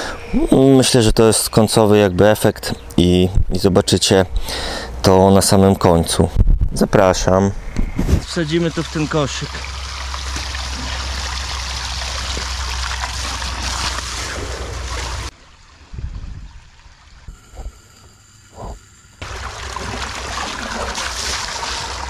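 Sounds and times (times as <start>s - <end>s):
water gushing from hose: 8.3s - 17.3s, 19.2s - 22.0s.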